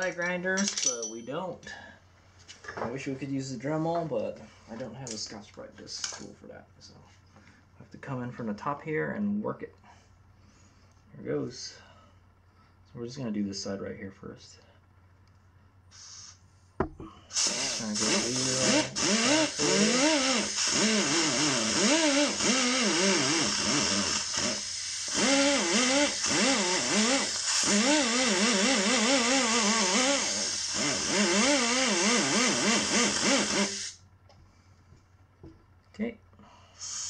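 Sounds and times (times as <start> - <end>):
power drill scrubbing metal: 17.3 - 34.0.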